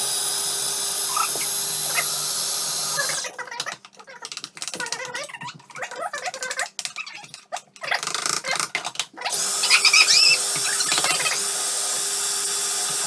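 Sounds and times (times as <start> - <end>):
food processor motor blending: 0.0 - 3.3, 9.3 - 13.0.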